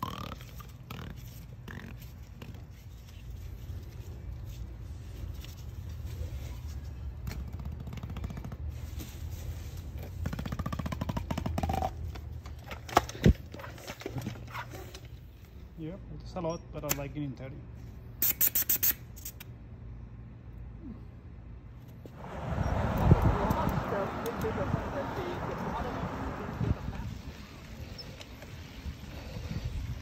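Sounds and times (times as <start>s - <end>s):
low background rumble: 19.8s - 28.0s.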